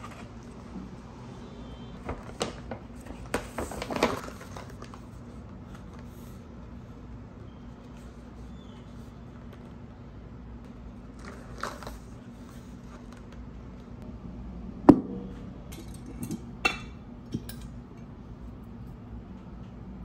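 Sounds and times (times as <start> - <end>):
paper bag rustle: 2.0 - 6.4, 11.0 - 13.4.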